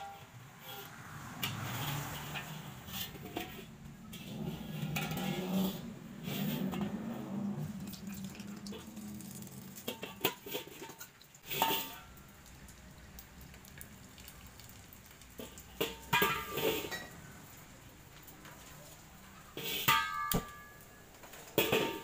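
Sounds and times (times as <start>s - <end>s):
metal wok knocks and scrapes: 0.0s - 12.6s, 15.4s - 17.6s, 19.4s - 22.0s
hot oil sizzling: 0.0s - 22.0s.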